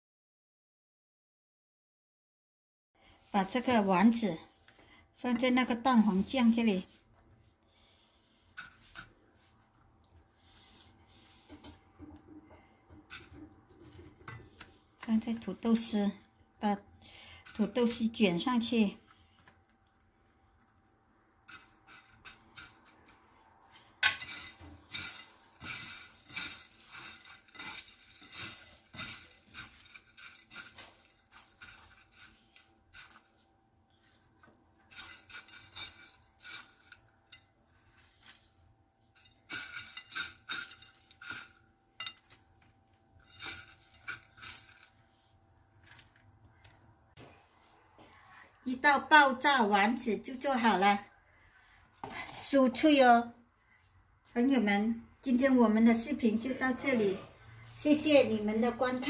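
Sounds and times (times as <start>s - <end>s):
crisp fried potato crackling: 21.4s - 33.4s, 34.1s - 46.7s.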